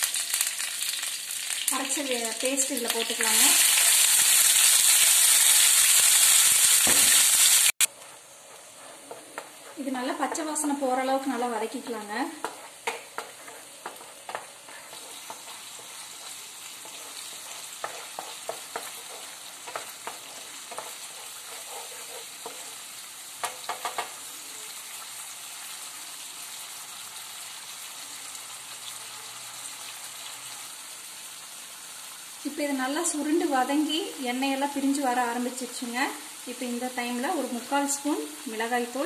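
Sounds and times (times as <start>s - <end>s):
paste sizzling in oil: 0.0s - 39.0s
wooden spatula scraping pan: 7.9s - 24.1s
spatula tapping pan: 12.3s - 22.8s, 23.4s - 24.2s.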